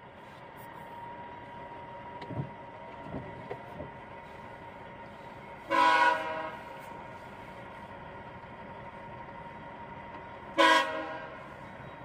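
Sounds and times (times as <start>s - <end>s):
locomotive air horn blast: 5.6s - 6.9s, 10.5s - 11.7s.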